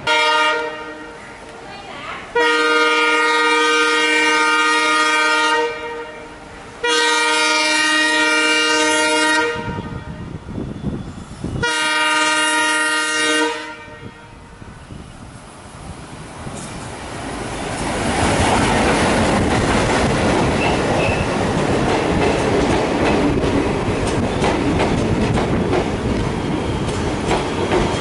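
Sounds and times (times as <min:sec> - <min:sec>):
locomotive air horn blasts: 0:00.0 - 0:01.2, 0:02.4 - 0:10.3, 0:11.6 - 0:14.6
engine and wheels rumbling: 0:14.0 - 0:28.0.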